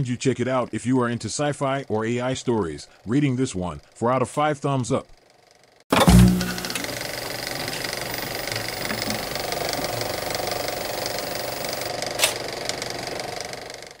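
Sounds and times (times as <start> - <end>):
sharp click: 5.9 - 7.0
film projector clatter: 5.9 - 14.0.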